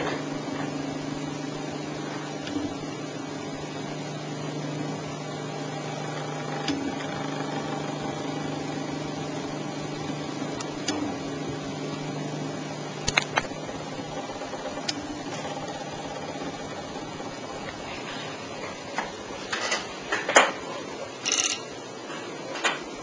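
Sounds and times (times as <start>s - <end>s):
laser engraver humming: 0.0s - 20.1s.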